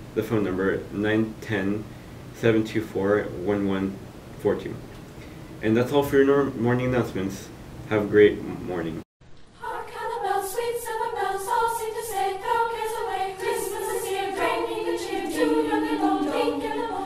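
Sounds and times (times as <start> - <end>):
choir singing in harmony: 9.6 - 17.0.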